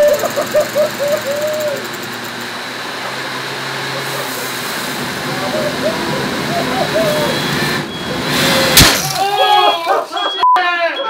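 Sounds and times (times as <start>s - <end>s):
jet engine rushing with high whine: 0.0s - 8.6s
short hooting tones: 5.2s - 10.4s.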